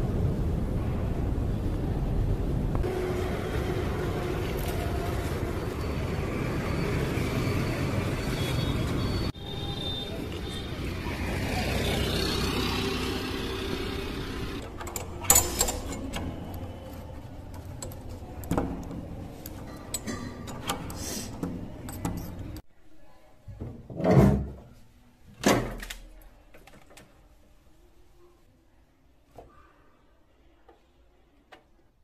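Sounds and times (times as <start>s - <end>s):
traffic noise: 0.0s - 22.6s
keys rattling in a door lock: 14.6s - 18.9s, 19.5s - 22.6s.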